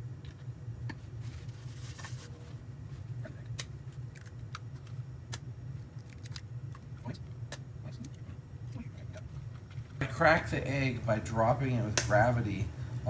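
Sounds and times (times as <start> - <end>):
steady low hum: 0.0 - 13.0
eggshells cracking and clicking: 3.6 - 6.9.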